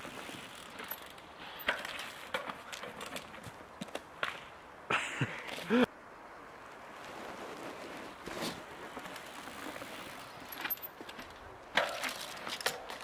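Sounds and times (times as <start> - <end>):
bike rattles and clicks: 0.0 - 4.4, 8.2 - 13.0.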